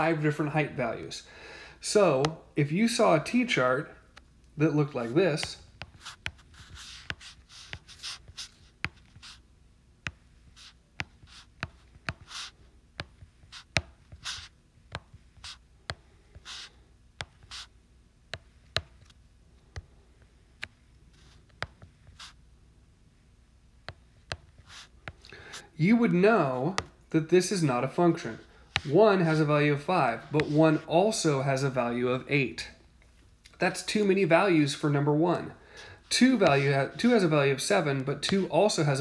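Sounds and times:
stylus scratchy strokes: 28.2s - 30.9s, 36.1s - 37.4s.

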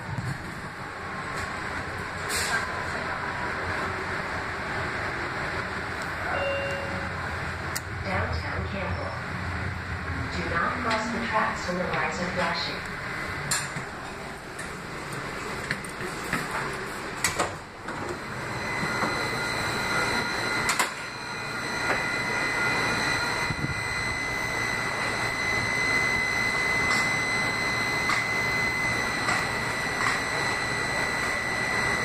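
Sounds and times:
rail car rumble: 0.0s - 32.0s
steady high-pitched tone: 6.1s - 13.4s, 18.2s - 32.0s.

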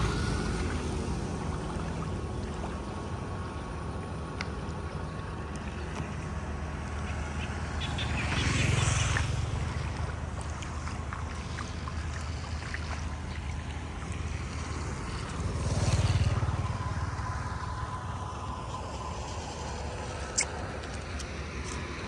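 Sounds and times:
motorbike engine passing: 0.0s - 3.2s, 6.0s - 20.4s.

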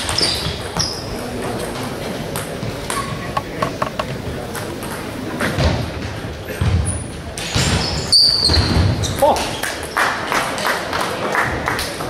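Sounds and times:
chatter in sports hall: 0.0s - 12.0s
table tennis ball clicking: 3.3s - 4.2s.

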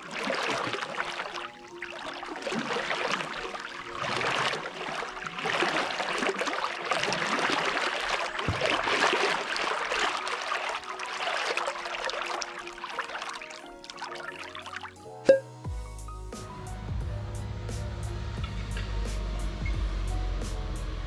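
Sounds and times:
water splashing and lapping: 0.0s - 15.1s.

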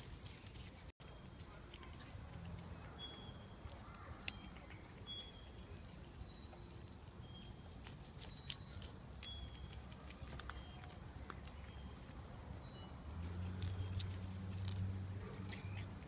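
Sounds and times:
cat chewing leaves: 0.0s - 2.8s, 5.8s - 12.3s, 13.1s - 16.0s.

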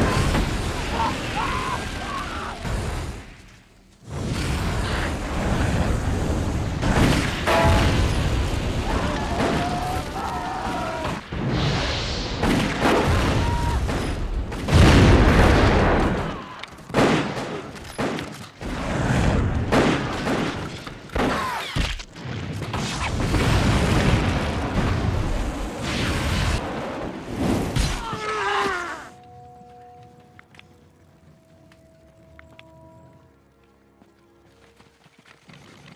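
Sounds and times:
explosions: 4.0s - 10.2s, 11.0s - 28.1s
gunfire: 12.4s - 22.0s.

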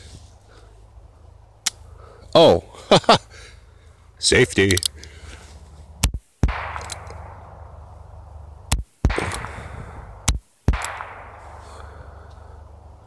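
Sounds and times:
revolver gunshots: 6.4s - 7.9s, 8.7s - 12.2s
rolling echo: 6.4s - 8.4s, 9.0s - 12.8s.

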